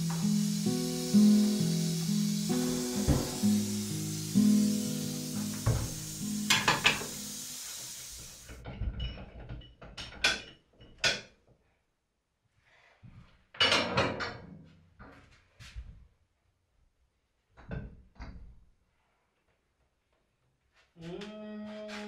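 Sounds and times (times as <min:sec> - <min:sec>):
metal pot knocking on table: 0:06.5 - 0:07.2.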